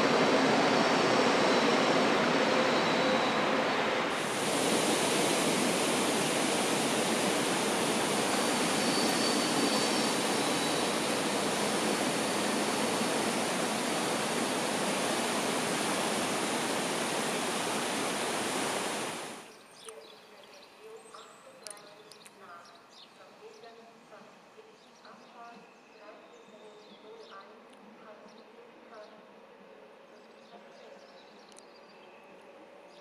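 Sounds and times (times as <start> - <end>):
whitewater river rushing: 4.0 - 19.4.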